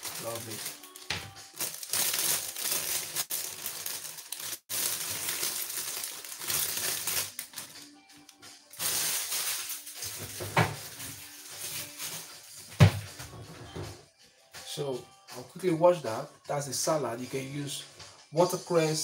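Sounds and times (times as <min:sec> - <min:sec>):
plastic bag crinkling: 0:00.0 - 0:07.8, 0:08.7 - 0:12.3
background music: 0:00.0 - 0:19.0.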